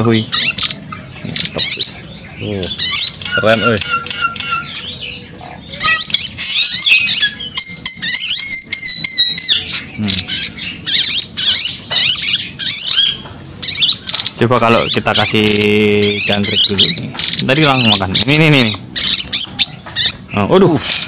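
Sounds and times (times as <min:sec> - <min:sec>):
high bird trill: 0:00.0 - 0:21.0
songbirds chirping: 0:00.0 - 0:21.0.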